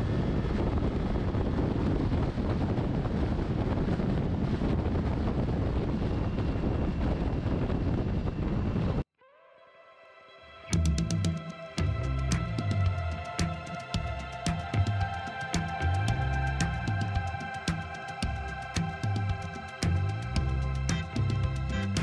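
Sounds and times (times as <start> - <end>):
motorcycle engine and road noise: 0.0 - 9.0
wind rushing over microphone: 0.0 - 9.1, 11.3 - 22.0.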